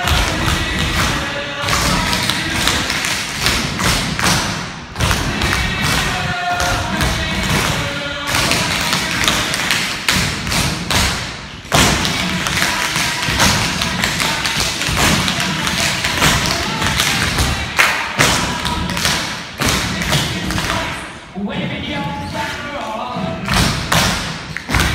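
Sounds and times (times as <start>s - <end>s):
music playing: 0.0s - 24.9s.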